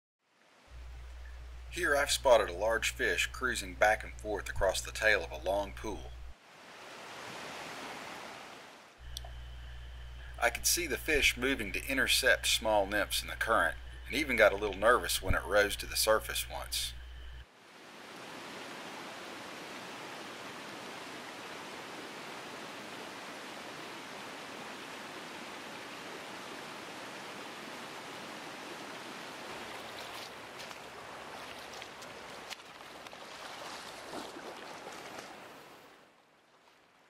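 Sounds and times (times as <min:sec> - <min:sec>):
stream rushing over stones: 0:06.4 - 0:08.9, 0:17.6 - 0:36.0
faint clicks: 0:09.1 - 0:09.4.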